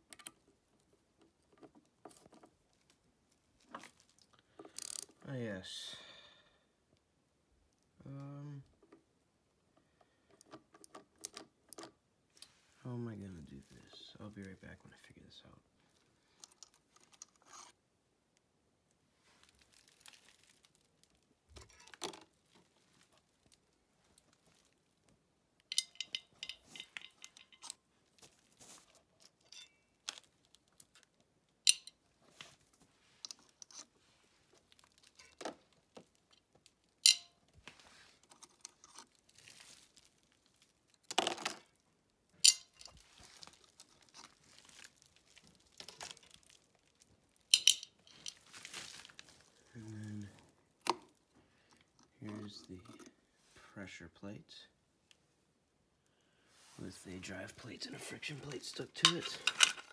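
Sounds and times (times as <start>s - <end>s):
small metal parts clinking: 3.8s - 5.2s, 25.6s - 27.8s, 28.6s - 31.1s, 31.7s - 32.0s, 34.8s - 35.6s, 36.2s - 37.4s, 42.4s - 46.6s, 47.4s - 48.8s, 58.9s - 59.9s
plastic sheeting crinkling: 19.2s - 21.3s, 39.1s - 41.0s, 43.0s - 49.8s.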